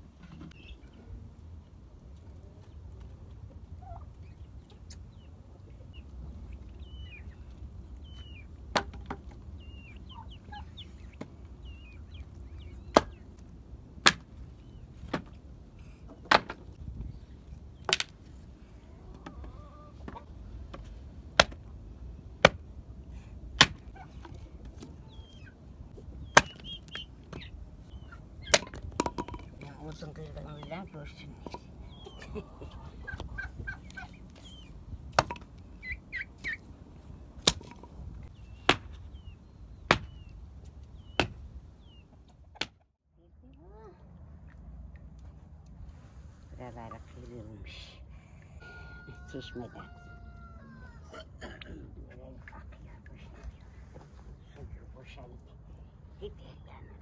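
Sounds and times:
adze chopping wooden boards: 14.0 - 14.3, 16.2 - 16.6, 21.4 - 21.7, 23.6 - 23.9, 26.3 - 26.7, 38.6 - 39.0, 39.9 - 40.2, 41.2 - 41.4.

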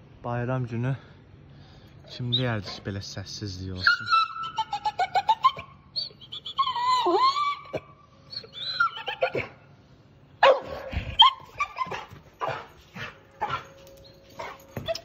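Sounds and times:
dog whining and yelping: 2.2 - 2.9, 3.8 - 9.7, 10.4 - 15.0.

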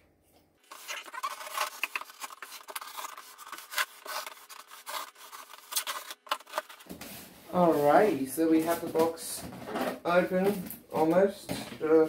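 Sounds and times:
scissors slitting packing tape: 0.7 - 6.8.

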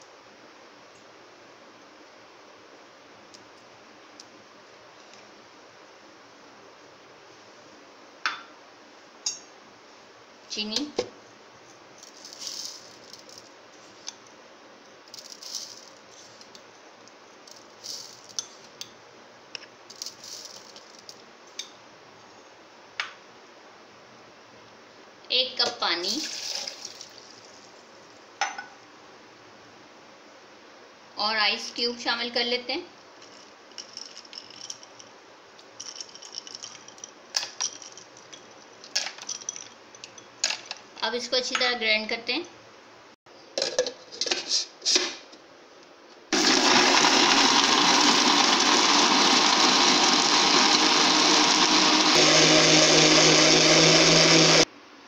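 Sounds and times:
sugar grains rustling off spoon: 12.0 - 13.4, 15.1 - 16.5, 17.5 - 18.4, 19.9 - 21.1
ice cubes clinking in a bowl: 33.2 - 35.1, 35.8 - 39.8.

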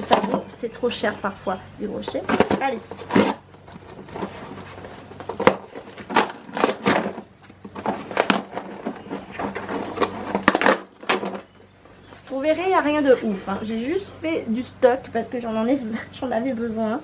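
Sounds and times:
cardboard tearing: 2.2 - 11.6
paper rustling: 2.2 - 12.8.

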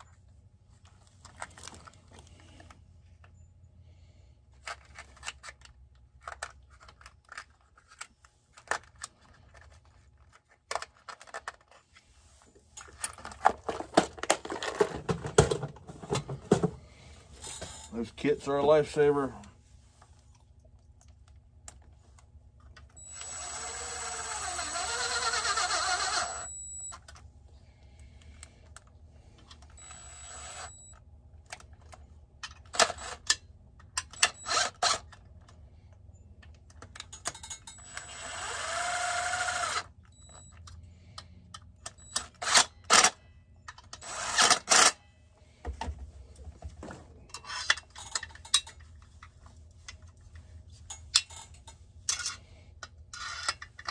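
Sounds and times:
cordless drill running: 23.0 - 26.6, 29.8 - 30.9, 34.4 - 35.0, 37.8 - 39.9, 44.0 - 44.8.

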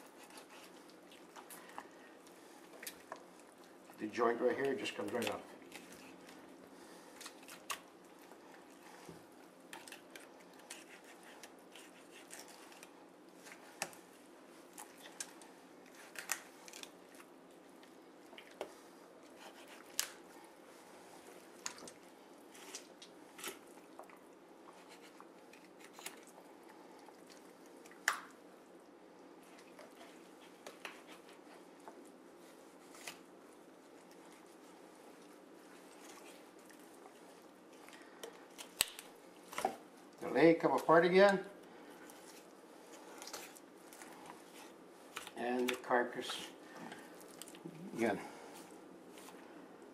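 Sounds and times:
knife scraping along bones: 0.0 - 1.3, 9.7 - 13.0, 19.3 - 20.2
faint steady hum: 0.0 - 49.9
soft wet sounds: 0.0 - 49.9.

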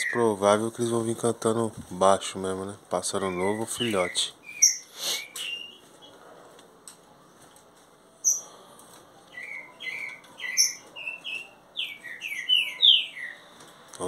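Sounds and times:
bird singing: 0.0 - 0.4, 3.0 - 6.2, 8.2 - 8.6, 9.3 - 13.6.

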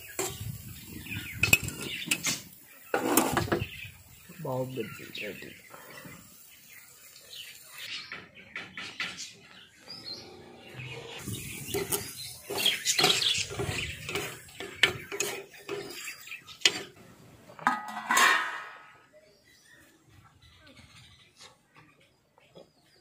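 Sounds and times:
steel plate clinking: 17.6 - 18.9.

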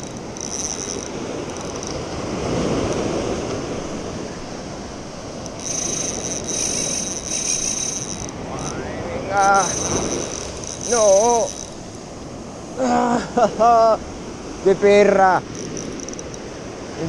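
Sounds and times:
fishing reel whirring: 0.0 - 12.6, 15.4 - 16.8
surf washing against rocks: 0.0 - 17.0.

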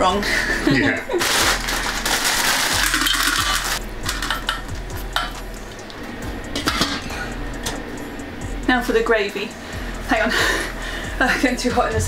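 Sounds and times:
green beans rustling: 1.2 - 3.8.

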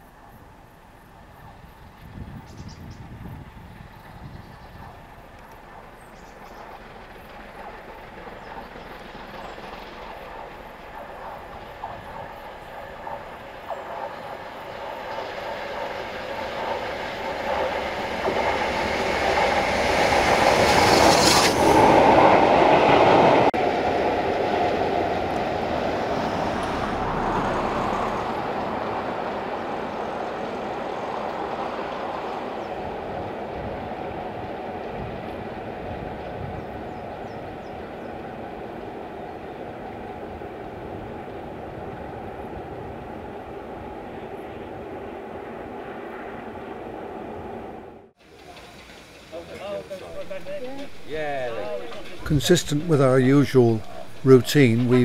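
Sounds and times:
train running rumble: 0.0 - 55.0
train wheels clattering: 3.8 - 23.5, 48.4 - 55.0.

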